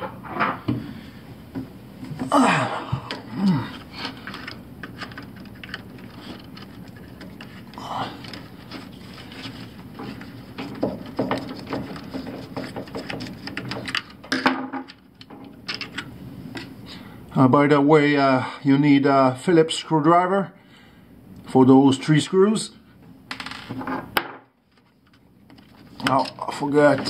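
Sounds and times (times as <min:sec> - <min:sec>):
screwdriver clicking and scraping: 0:04.2 - 0:14.2.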